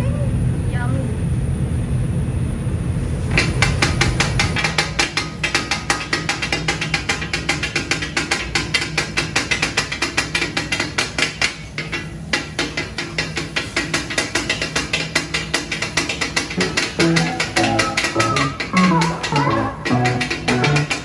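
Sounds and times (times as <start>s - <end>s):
metal spatulas clanking on griddle: 3.4s - 21.0s.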